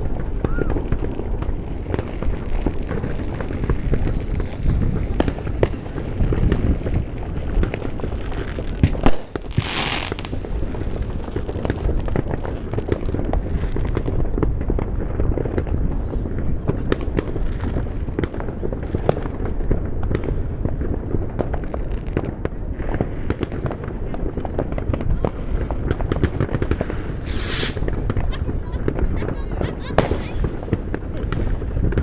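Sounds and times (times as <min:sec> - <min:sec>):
fireworks bangs and crackles: 0:00.0 - 0:32.0
short hiss: 0:27.1 - 0:27.8.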